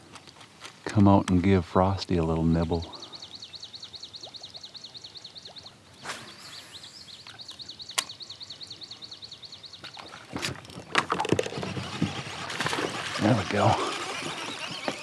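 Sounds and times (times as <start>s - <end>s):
sharp clicks: 7.2s - 8.2s
bird trilling: 11.4s - 15.0s.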